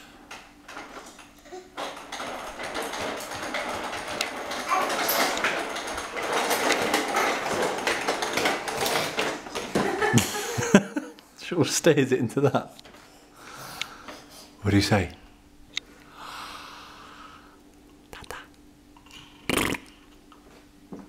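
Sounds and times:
plastic walker rattling on wooden floor: 0:00.3 - 0:10.9.

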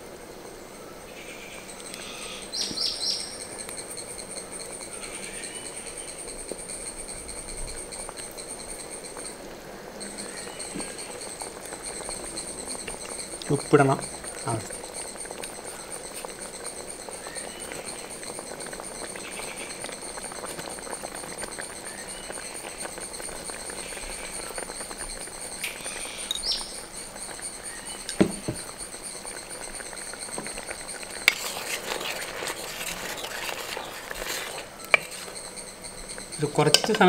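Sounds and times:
pot simmering with faint bubbling: 0:00.0 - 0:37.0
wooden spoon stirring pot: 0:10.2 - 0:37.0
knock: 0:28.2 - 0:28.6.

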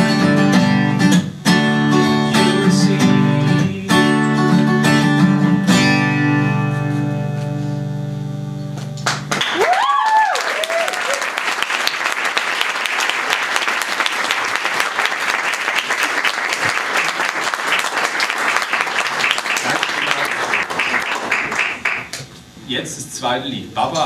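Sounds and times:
acoustic guitar chord ringing: 0:00.0 - 0:09.3
audience applause: 0:09.0 - 0:22.2
audience cheering: 0:09.3 - 0:22.1.

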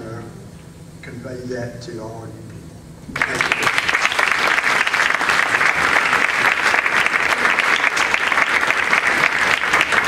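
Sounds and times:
audience applauding: 0:03.2 - 0:10.0.

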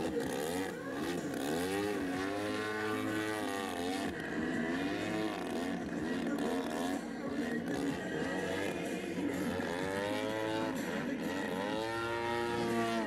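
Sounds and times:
model plane engine revving: 0:00.0 - 0:07.0.

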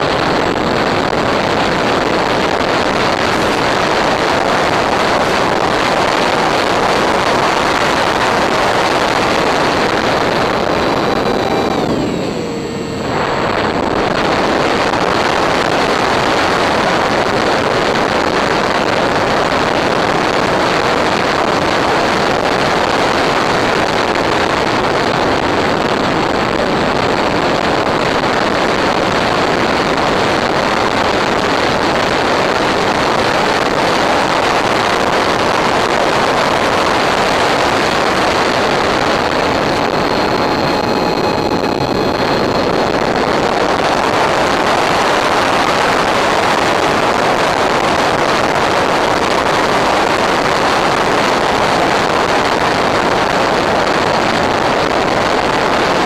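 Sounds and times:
faint whining tones: 0:00.0 - 0:18.4, 0:34.6 - 0:47.2
loud rushing noise: 0:00.0 - 0:56.0.

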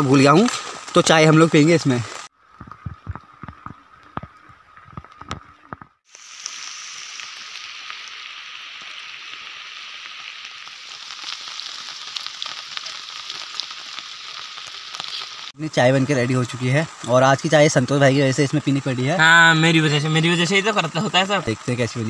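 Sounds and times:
steady rain hiss: 0:00.0 - 0:04.4, 0:06.0 - 0:22.0
scattered drips and taps: 0:02.5 - 0:06.0.

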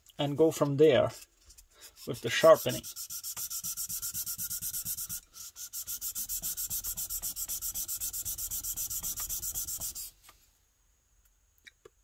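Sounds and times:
plane iron rubbing on sandpaper: 0:01.8 - 0:10.2.

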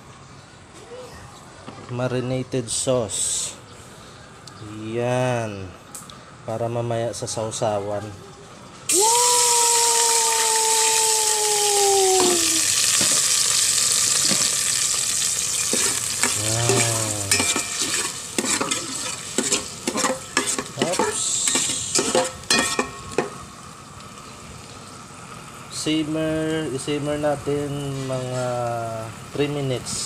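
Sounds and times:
marinade sizzling in a pot: 0:08.9 - 0:30.0
spoon scraping a pot: 0:15.6 - 0:23.3.

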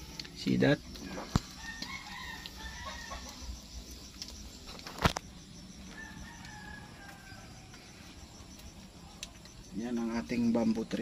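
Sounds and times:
high insect chirring: 0:00.0 - 0:11.0
rooster crowing faintly: 0:01.0 - 0:03.6, 0:05.8 - 0:08.2.

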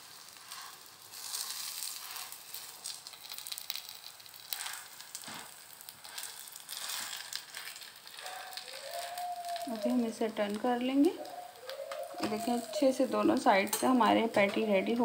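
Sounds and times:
patties sizzling in pan: 0:00.0 - 0:15.0
spatula scraping and tapping pan: 0:00.3 - 0:03.0, 0:03.6 - 0:07.9, 0:11.6 - 0:14.7.

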